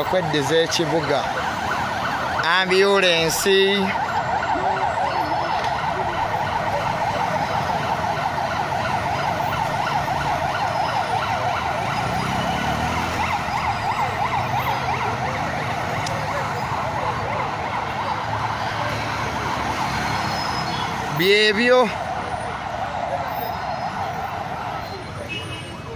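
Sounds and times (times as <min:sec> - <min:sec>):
ambulance siren warbling: 0:00.0 - 0:25.9
street traffic: 0:00.0 - 0:25.9
motorcycle engine passing: 0:11.5 - 0:15.0.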